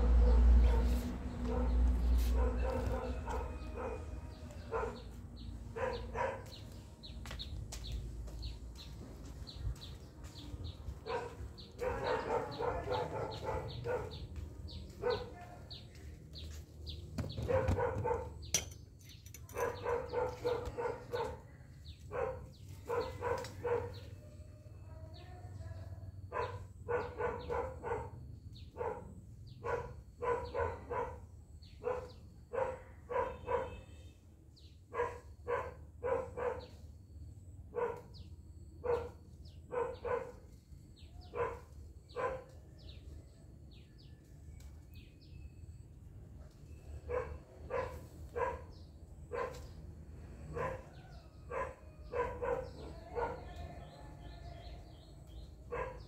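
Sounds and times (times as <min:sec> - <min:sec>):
dog barking: 0:00.0 - 0:06.6, 0:11.0 - 0:15.5, 0:17.3 - 0:18.5, 0:19.5 - 0:21.5, 0:22.1 - 0:24.2, 0:26.3 - 0:34.0, 0:34.9 - 0:36.8, 0:37.7 - 0:40.5, 0:41.1 - 0:42.6, 0:47.0 - 0:49.8, 0:50.5 - 0:53.6, 0:55.6 - 0:56.0
birds chirping faintly: 0:00.2 - 0:49.8, 0:50.5 - 0:56.0.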